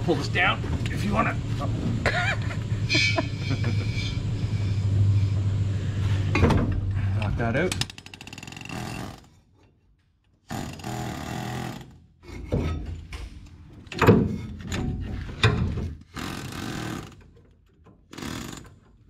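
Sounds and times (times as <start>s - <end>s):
pneumatic air hammer hammering: 10.4s - 12.8s, 13.9s - 17.3s, 18.1s - 18.8s.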